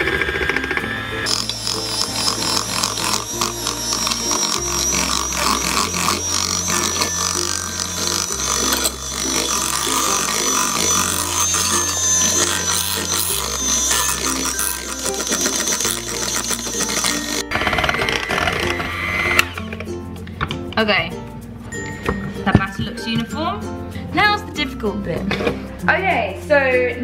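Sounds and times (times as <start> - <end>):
electric hand mixer whining: 0.0 - 19.9.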